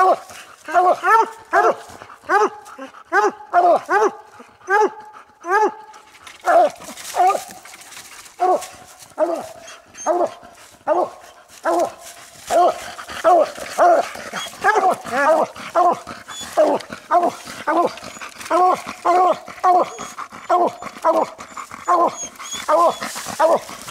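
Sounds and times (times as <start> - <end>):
hounds barking: 0.0 - 7.6, 8.4 - 23.9.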